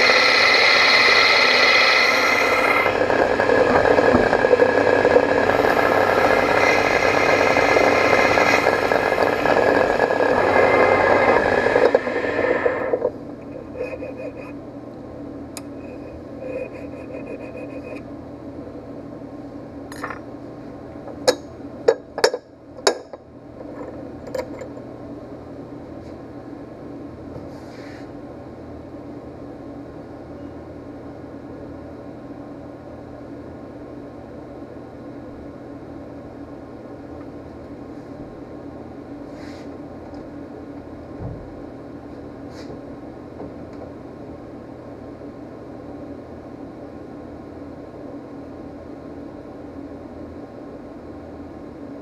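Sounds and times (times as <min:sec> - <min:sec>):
lathe machining metal with whine: 0:00.0 - 0:14.6, 0:15.7 - 0:18.0
low hum: 0:00.0 - 0:18.8.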